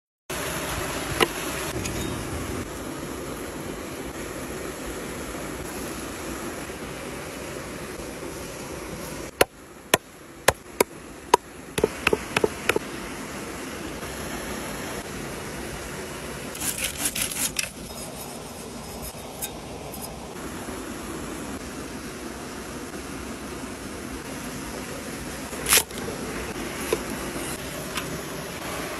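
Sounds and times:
stream rushing: 0.3s - 28.9s
knocks on wooden chopping board: 11.8s - 12.8s.

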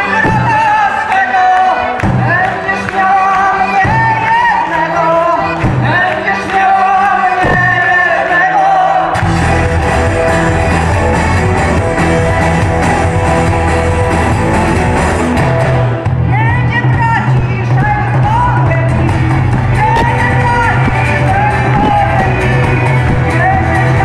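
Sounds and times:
drums: 0.0s - 0.9s, 2.0s - 2.6s, 3.7s - 4.5s, 5.4s - 6.2s, 7.4s - 8.1s, 9.1s - 24.0s
person singing: 0.0s - 9.4s, 16.2s - 24.0s
folk-rock band playing: 0.0s - 24.0s.

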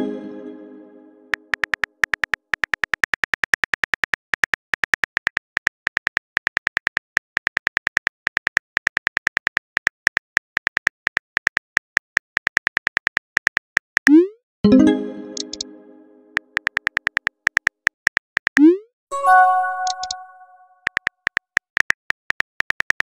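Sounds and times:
phone keyboard clicks: 1.4s - 11.6s, 19.8s - 20.2s.

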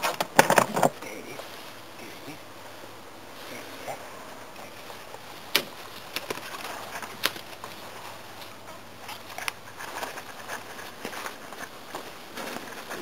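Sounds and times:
rustling in dry grass: 1.2s - 13.0s.

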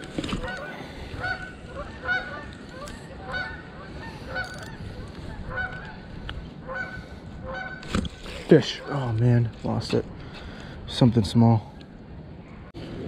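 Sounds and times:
geese honking: 0.4s - 6.0s, 6.6s - 7.9s.

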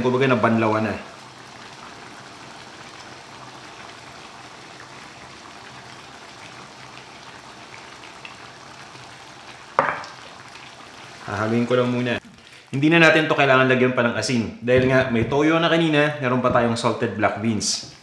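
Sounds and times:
sauce simmering in a wok: 0.0s - 13.4s.

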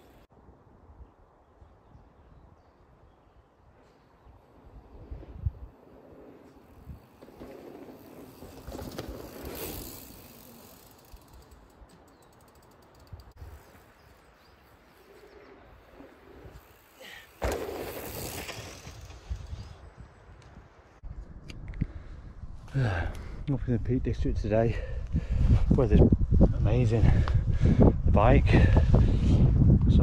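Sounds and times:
bike tyres on dirt trail: 0.0s - 0.3s, 2.4s - 23.4s
woodland birds calling: 13.4s - 16.3s.

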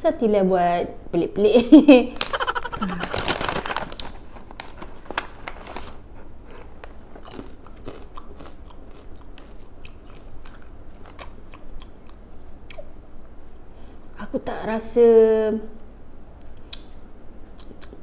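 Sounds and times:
person chewing crunchy food: 6.5s - 12.9s.

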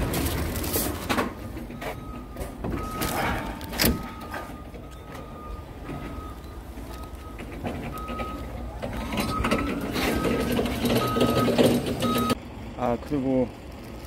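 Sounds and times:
diesel engine: 0.0s - 14.0s
truck reversing alarm beeping: 1.3s - 12.4s.

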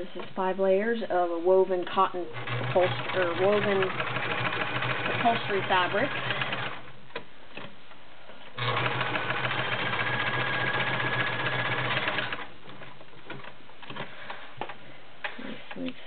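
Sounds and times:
sewing machine stitching: 2.3s - 6.8s, 8.6s - 12.5s.

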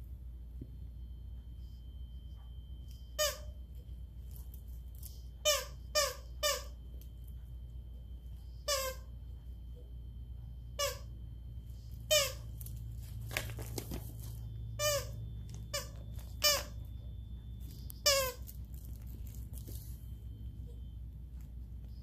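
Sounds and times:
dog toy squeaking: 3.2s - 3.6s, 5.4s - 6.8s, 8.6s - 9.1s, 10.8s - 11.1s, 12.1s - 12.7s, 14.8s - 16.9s, 18.0s - 18.9s.

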